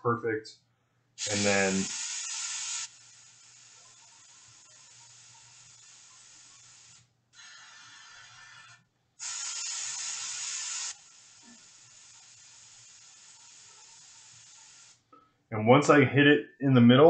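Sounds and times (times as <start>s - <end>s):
faint steady hiss: 1.2s - 8.4s
airbrush hissing in bursts: 1.2s - 15.0s.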